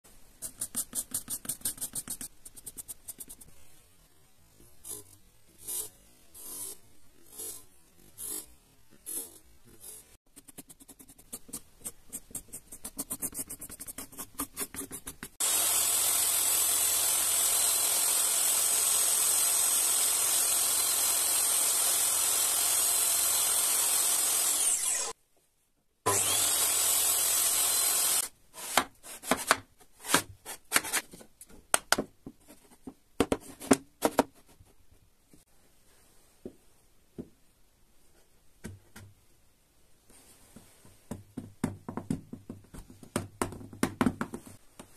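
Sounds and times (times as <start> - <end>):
pencil scratching on wood: 0.4 - 3.5, 4.7 - 15.4
table saw running: 15.4 - 25.2, 26.1 - 28.3.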